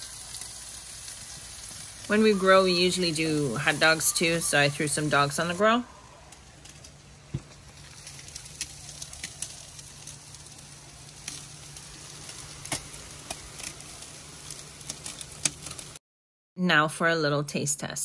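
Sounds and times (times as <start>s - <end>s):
meat sizzling on a grill: 0.0s - 16.0s
sharp pops and crackles: 6.3s - 16.0s.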